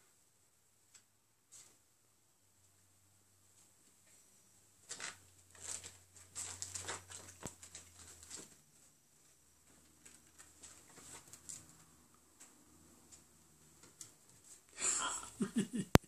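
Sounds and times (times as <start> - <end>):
rustling and scratching on fabric: 4.8 - 14.8.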